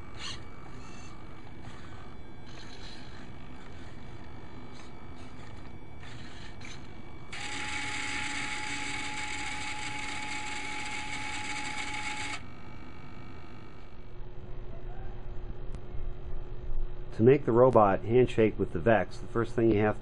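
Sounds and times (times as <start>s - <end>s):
small electric motor whining: 0.0s - 14.0s.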